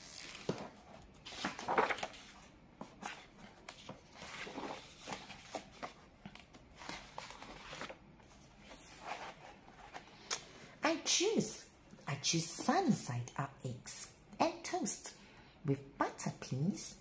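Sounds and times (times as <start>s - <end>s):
paper pages turning: 0.0s - 10.2s.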